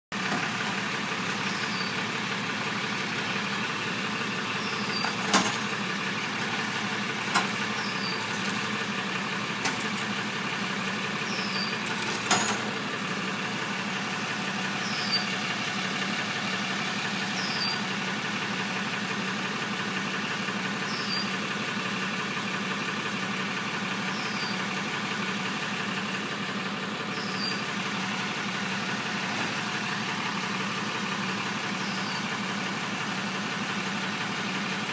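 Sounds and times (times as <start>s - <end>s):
truck engine idling: 0.1s - 34.9s.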